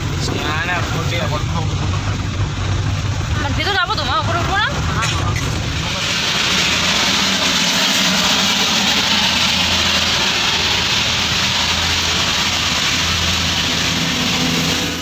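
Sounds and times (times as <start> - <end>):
engines idling: 0.0 - 15.0
loud even hiss: 4.3 - 15.0.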